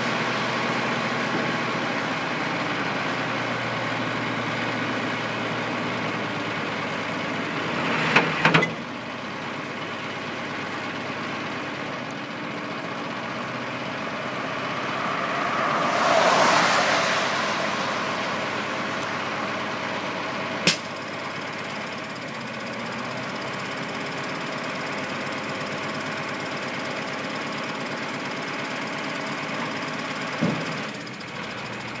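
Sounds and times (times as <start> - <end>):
diesel truck engine idling: 0.0 - 7.9, 8.8 - 32.0
sharp knocks and clunks: 30.4 - 30.7.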